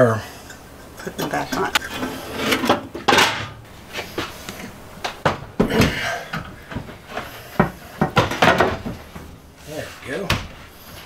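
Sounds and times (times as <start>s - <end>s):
metal cooktop clunking shut: 2.4s - 3.6s.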